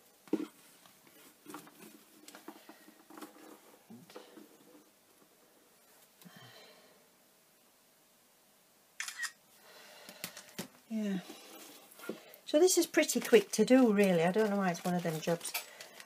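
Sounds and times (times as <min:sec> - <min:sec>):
soft rustling of hands: 0:11.0 - 0:16.0.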